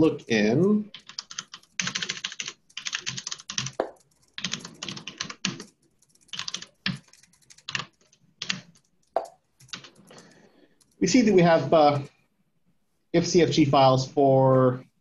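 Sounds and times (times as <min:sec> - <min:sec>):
typing on computer keyboard: 0:00.9 - 0:11.3.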